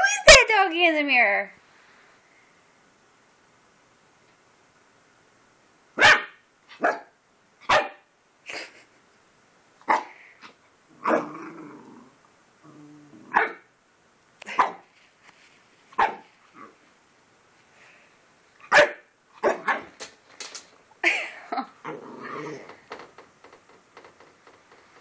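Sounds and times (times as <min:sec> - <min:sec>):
puppy barking: 0:06.0 - 0:08.1, 0:09.9 - 0:10.2, 0:13.3 - 0:13.7, 0:14.5 - 0:14.8, 0:16.0 - 0:16.3, 0:18.7 - 0:20.0
puppy growling: 0:10.9 - 0:13.6, 0:21.6 - 0:23.0.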